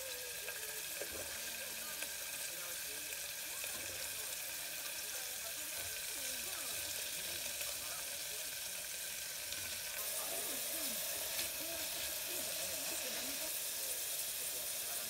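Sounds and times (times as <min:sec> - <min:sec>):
vegetables sizzling in oil: 0:00.0 - 0:15.0
spatula stirring in metal tin: 0:09.6 - 0:14.4.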